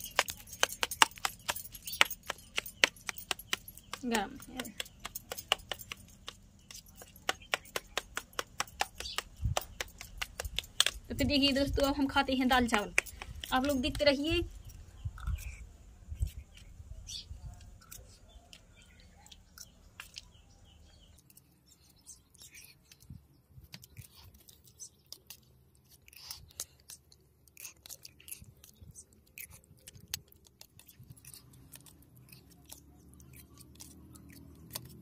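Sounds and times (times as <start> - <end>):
person chewing food: 0.0 - 11.1, 15.0 - 16.7, 21.2 - 35.0.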